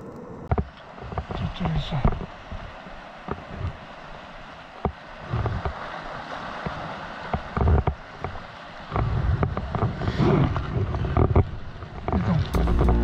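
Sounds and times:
surf washing against rocks: 0.0s - 13.0s
wind buffeting microphone: 4.9s - 13.0s.

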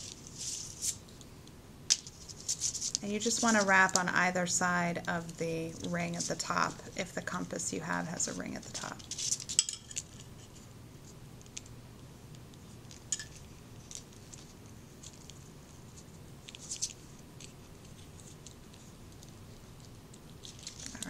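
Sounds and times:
wire scratching and clicking: 12.3s - 21.0s.

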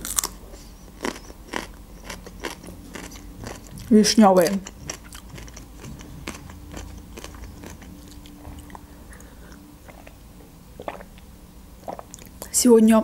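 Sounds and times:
woman sipping and swallowing: 10.8s - 11.2s.

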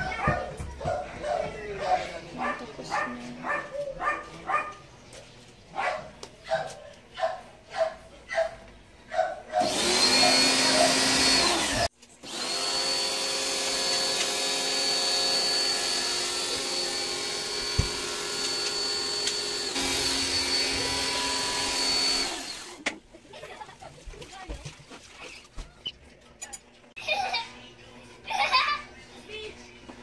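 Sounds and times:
pressure washer motor whining: 9.6s - 22.8s.

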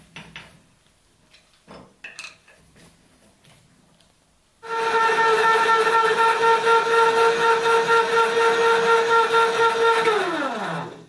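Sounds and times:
electric motor whining: 4.6s - 11.0s.

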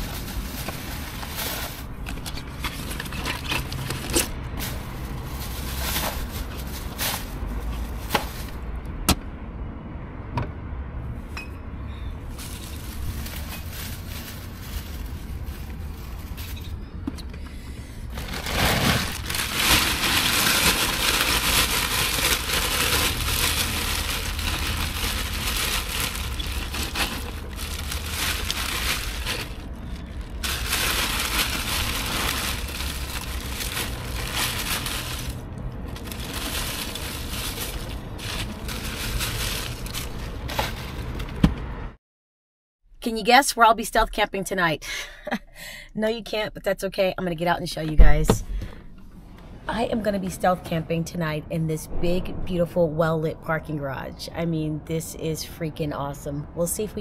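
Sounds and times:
plastic bags crinkling: 0.0s - 8.6s, 12.3s - 16.6s, 18.1s - 41.3s
ice cubes crunching and clattering: 18.2s - 41.2s.

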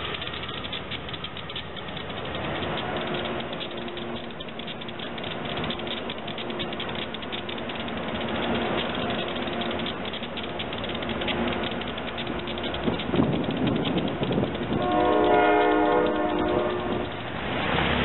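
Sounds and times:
electric locomotive rattling: 0.0s - 18.0s.

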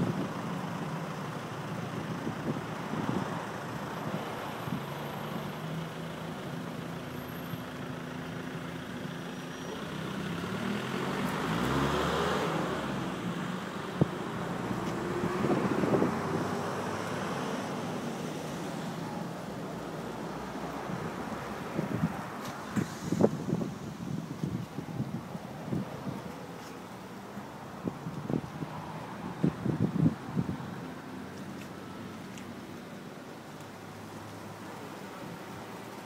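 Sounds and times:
road traffic noise: 0.0s - 36.0s
vehicle passing with sliding pitch: 9.4s - 24.6s.

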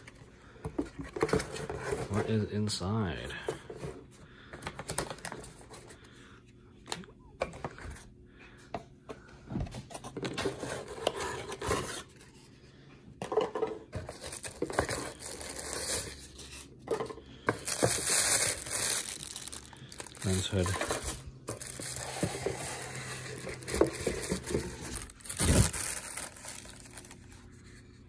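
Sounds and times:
cardboard and paper rustling: 0.0s - 6.0s, 13.2s - 28.0s.

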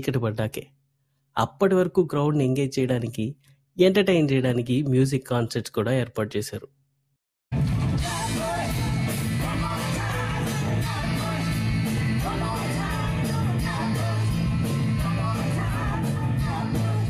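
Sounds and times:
live rock band playing: 7.6s - 17.0s
women singing: 8.0s - 17.0s.

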